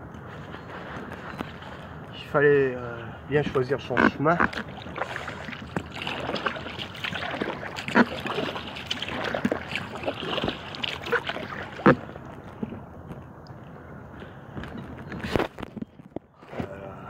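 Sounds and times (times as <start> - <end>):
paddle splashing in water: 4.0 - 12.8
water trickling off paddle: 4.4 - 12.8.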